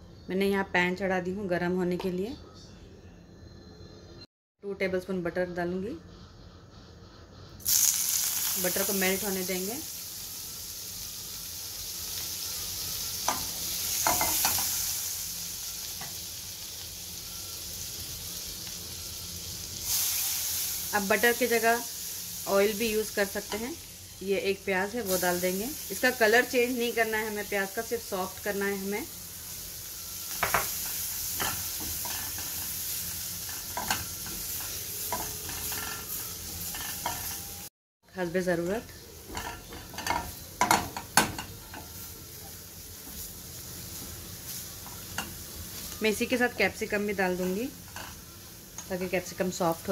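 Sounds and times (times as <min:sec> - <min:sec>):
sharp sizzling pops: 0:07.6 - 0:17.1, 0:24.9 - 0:37.4
butter sizzling in a pan: 0:07.6 - 0:37.7, 0:38.5 - 0:49.9
spatula scraping and knocking pan: 0:31.4 - 0:32.8.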